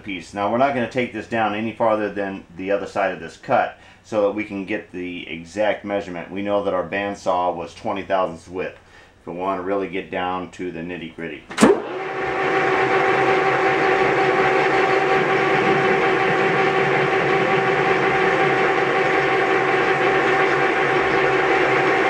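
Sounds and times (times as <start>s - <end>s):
metal lathe running: 11.6s - 22.0s.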